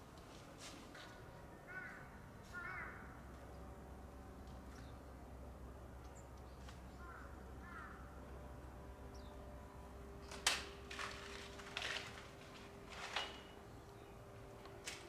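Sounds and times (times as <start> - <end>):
crows cawing: 1.6 - 3.2, 7.0 - 8.2.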